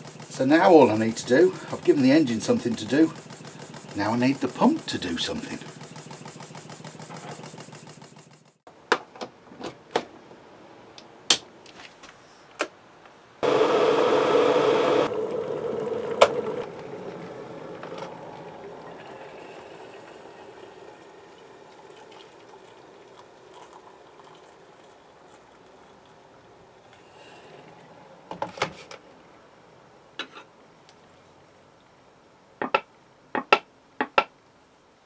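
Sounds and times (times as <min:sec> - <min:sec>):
faint kettle heating hiss: 0:00.0 - 0:05.8, 0:13.0 - 0:32.4
water running into kettle: 0:15.1 - 0:26.5.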